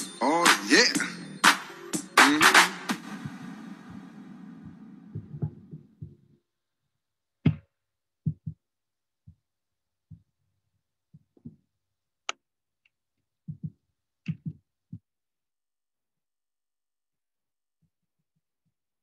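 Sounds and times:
soft thumps: 0:03.2 - 0:06.3, 0:07.4 - 0:08.6, 0:13.5 - 0:15.0.

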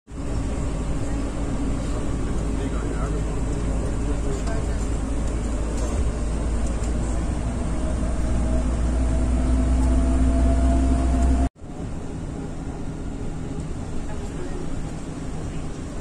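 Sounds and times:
vehicle interior rumble: 0:00.1 - 0:16.0
faint rising whine: 0:05.0 - 0:13.6.

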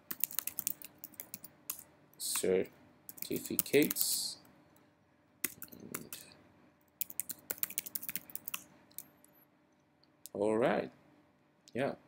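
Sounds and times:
computer keyboard typing: 0:00.0 - 0:02.5, 0:03.1 - 0:04.2, 0:05.4 - 0:06.3, 0:07.0 - 0:09.1.

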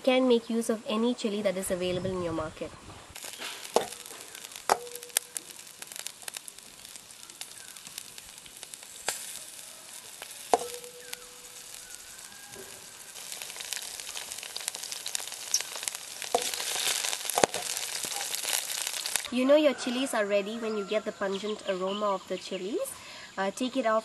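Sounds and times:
chillies sizzling in oil: 0:01.2 - 0:22.8
wooden spatula stirring: 0:03.2 - 0:07.2, 0:09.9 - 0:19.2
spatula knocking on pan: 0:10.5 - 0:10.9.

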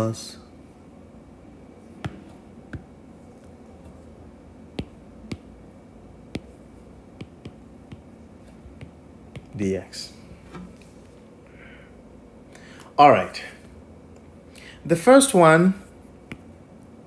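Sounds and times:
stylus tapping on glass screen: 0:02.0 - 0:02.9, 0:04.8 - 0:05.5, 0:06.3 - 0:06.6, 0:07.2 - 0:08.1, 0:08.7 - 0:09.6.

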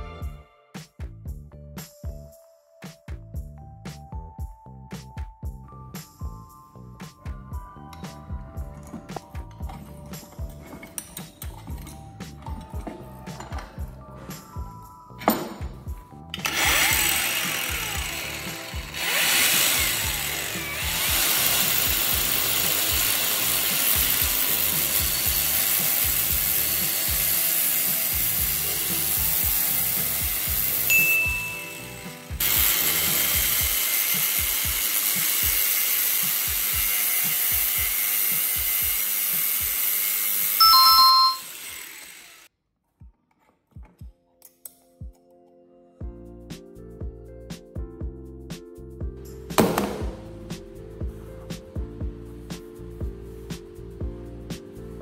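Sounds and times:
background music with steady beat: 0:00.0 - 0:41.5, 0:43.0 - 0:55.0
power tool running: 0:16.4 - 0:42.5
short loud beep: 0:40.6 - 0:41.6.

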